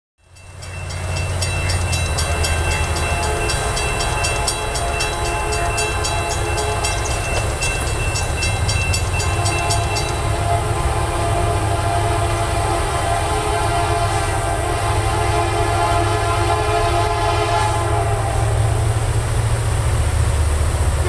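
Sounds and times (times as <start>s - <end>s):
crossing warning bell ringing: 0.2s - 19.4s
distant locomotive horn: 0.2s - 20.0s.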